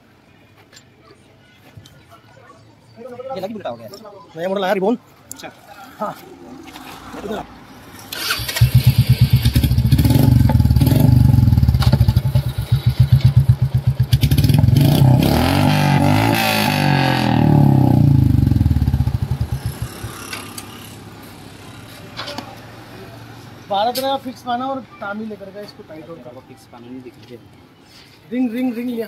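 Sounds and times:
motorcycle engine thumping: 8.8 - 14.8.

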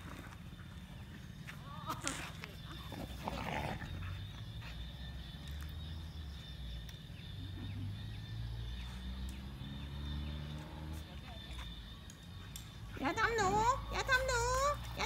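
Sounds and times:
dogs growling while play-fighting: 2.8 - 4.8.

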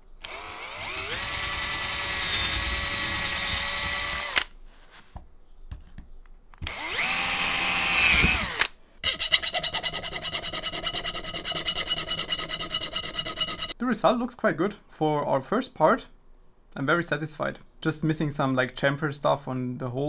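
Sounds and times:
cordless drill boring metal: 0.0 - 4.5, 6.6 - 13.8
hand tool scraping metal edge: 9.0 - 13.8.

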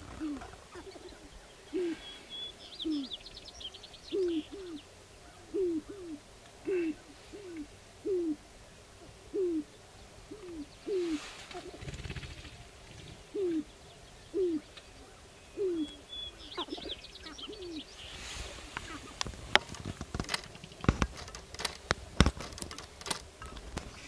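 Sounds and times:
grouse hooting: 0.0 - 3.2, 4.1 - 24.0
high-pitched bird calls: 0.0 - 8.3, 13.3 - 19.2
short rattling burst: 19.3 - 24.0.

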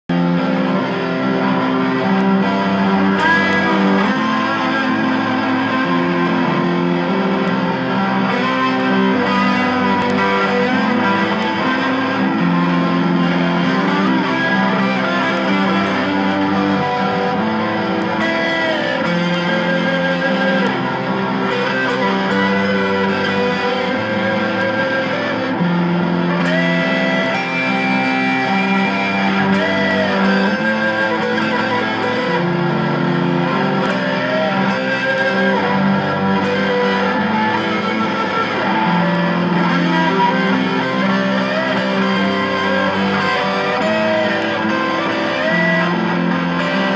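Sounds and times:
electric guitar lead: 0.0 - 46.9.

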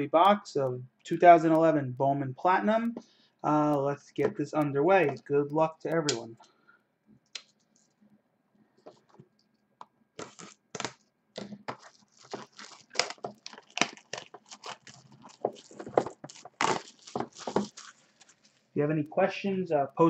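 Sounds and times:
plastic shrink wrap crinkling: 10.2 - 18.8.

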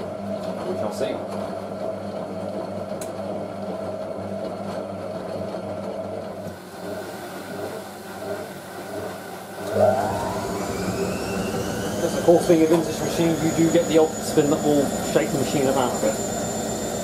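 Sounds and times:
washing machine motor running: 0.0 - 17.0.

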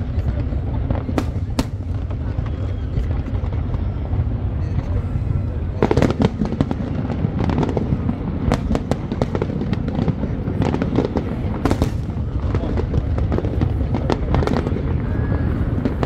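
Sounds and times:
fireworks cracks and bangs: 0.0 - 16.0.

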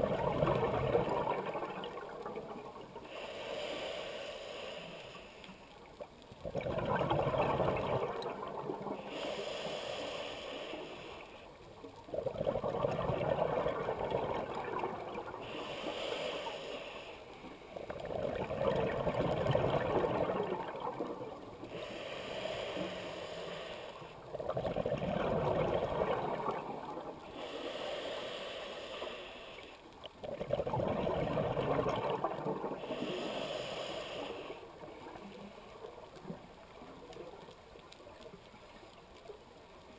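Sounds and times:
bubbling exhaust underwater: 0.0 - 3.2, 6.4 - 9.3, 12.0 - 16.7, 17.8 - 28.3, 30.2 - 37.2
hissing regulator inhale: 3.0 - 5.8, 9.0 - 11.6, 15.4 - 17.8, 21.6 - 24.3, 27.2 - 29.9, 32.7 - 34.9.

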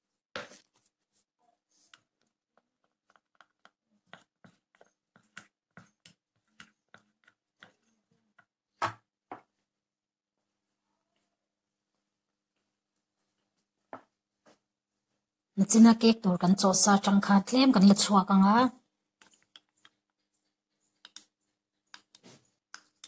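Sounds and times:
spoon stirring in ceramic mug: 2.0 - 8.5.

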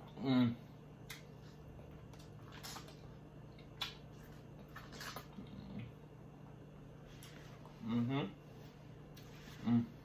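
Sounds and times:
person chewing corn wetly: 1.0 - 6.1.

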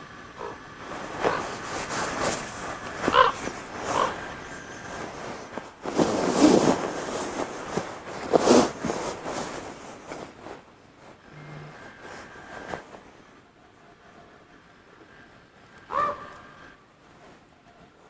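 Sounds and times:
deer calling: 0.4 - 0.6, 1.2 - 1.6, 3.0 - 4.8, 15.9 - 16.5.

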